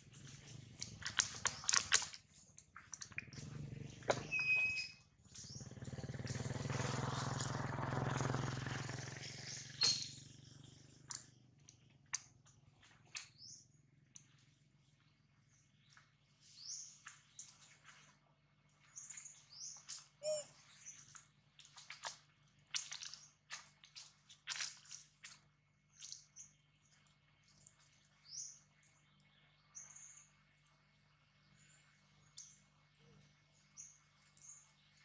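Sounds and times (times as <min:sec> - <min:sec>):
high chirps: 0:09.3 - 0:10.2, 0:20.2 - 0:20.5.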